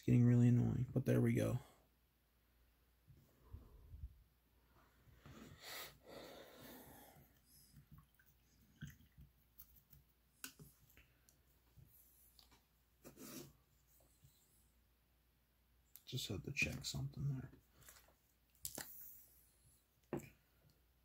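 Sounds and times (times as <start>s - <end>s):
small clicks and rustles on desk: 7.8s - 12.7s.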